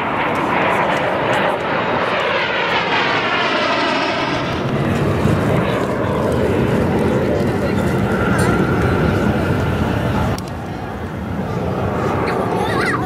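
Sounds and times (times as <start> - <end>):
jet aircraft flying past: 0.0 - 13.0.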